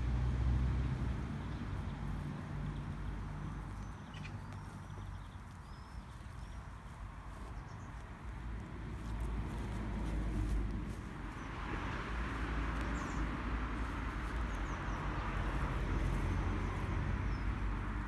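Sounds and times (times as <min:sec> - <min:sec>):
distant traffic rumble: 0:00.0 - 0:18.0
footsteps on grass: 0:00.8 - 0:18.0
bird chirps: 0:03.5 - 0:06.9.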